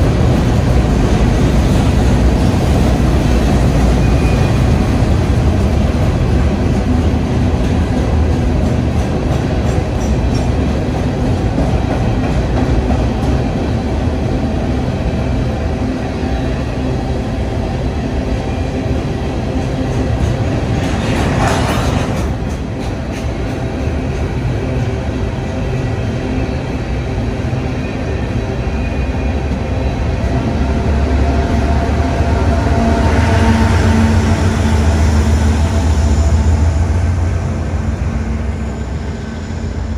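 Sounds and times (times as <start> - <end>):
steel wheels rumbling on rails: 0.0 - 39.9.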